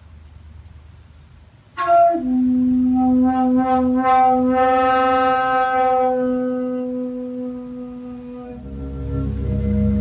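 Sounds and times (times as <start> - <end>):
bamboo flute with breath noise: 1.8 - 5.5.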